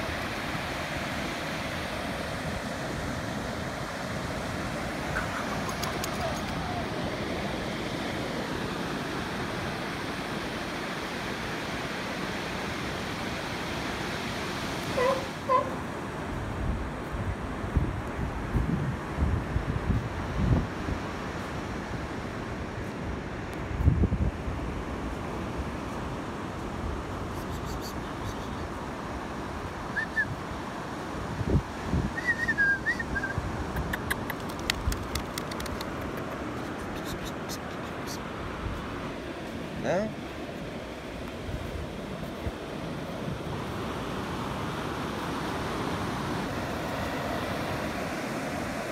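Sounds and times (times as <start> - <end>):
ocean surf breaking: 0.0 - 16.6, 34.8 - 48.9
wind rumbling on microphone: 14.9 - 48.9.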